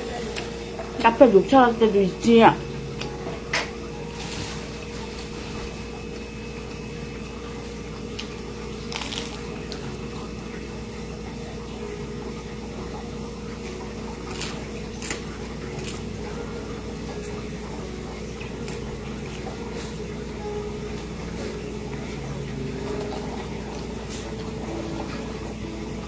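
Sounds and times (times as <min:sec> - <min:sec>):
steady low hum: 0:00.0 - 0:26.0
chewing crunchy sandwich: 0:07.5 - 0:11.6, 0:12.8 - 0:20.0, 0:22.8 - 0:25.6.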